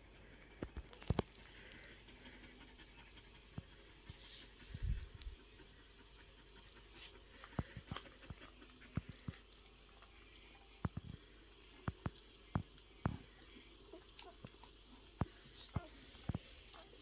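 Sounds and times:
puppies suckling wet smacks: 5.0 - 17.0.

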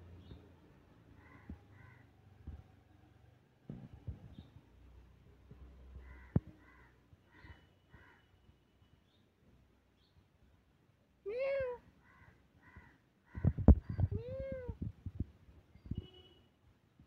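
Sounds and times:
cat meowing: 11.3 - 11.8.

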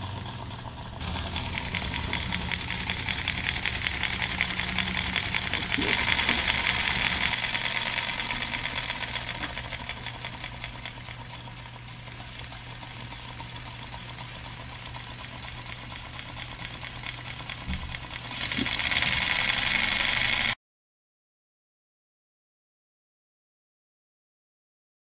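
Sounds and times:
model engine exhaust puffing: 0.0 - 20.6.

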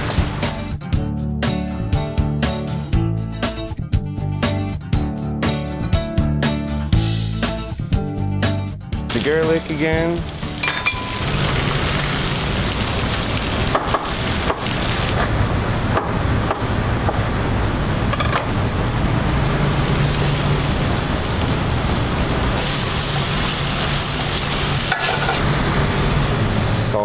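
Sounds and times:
rushing kitchen noise: 9.1 - 27.0.

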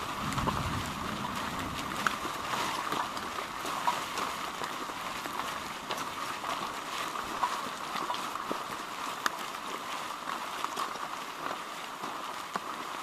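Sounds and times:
light rain hissing: 0.0 - 6.0
raindrops ticking: 0.0 - 13.0.

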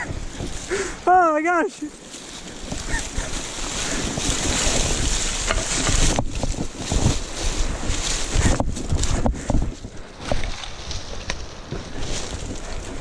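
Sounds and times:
leaves and stones scraping: 0.0 - 13.0
stones knocking: 4.2 - 7.2, 10.2 - 13.0.

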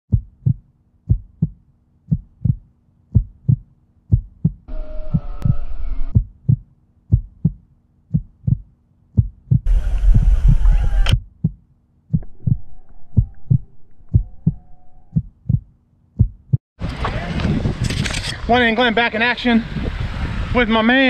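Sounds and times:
deep double thumps: 0.1 - 16.6.

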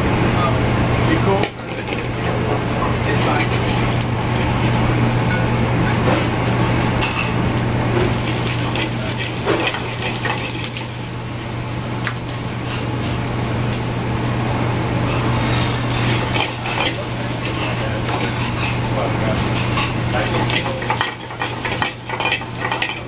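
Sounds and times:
low kitchen hum: 0.0 - 23.0
pans and utensils clinking: 1.3 - 3.9, 8.0 - 11.0, 15.0 - 23.0.

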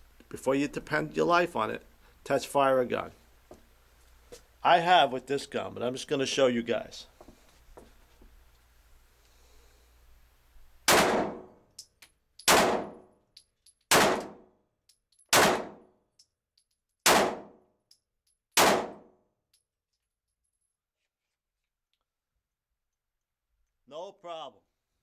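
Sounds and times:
pistol shots echoing: 10.9 - 11.5, 12.5 - 13.1, 13.9 - 14.4, 15.3 - 15.8, 17.0 - 17.6, 18.6 - 19.1.

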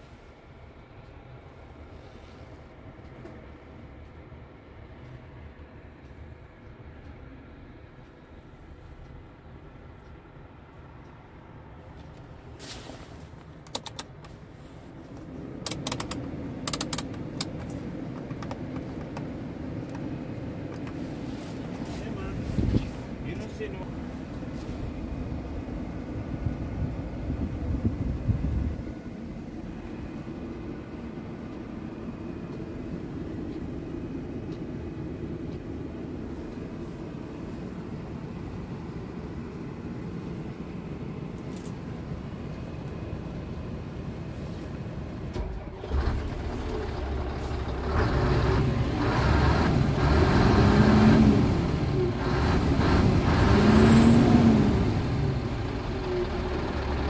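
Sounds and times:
diesel engine idling: 0.0 - 57.0
engine revving: 45.4 - 57.0.

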